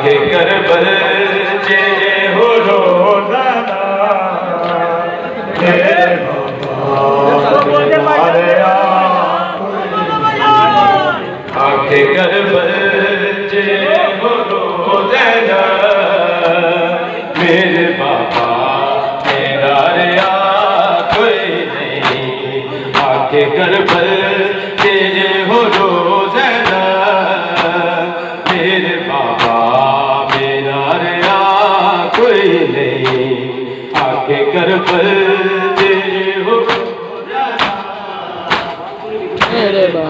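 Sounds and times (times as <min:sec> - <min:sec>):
men chanting a mourning lament: 0:00.0 - 0:40.0
hands slapping bare chests: 0:27.5 - 0:27.8, 0:36.7 - 0:36.9, 0:37.6 - 0:37.8, 0:38.5 - 0:38.8.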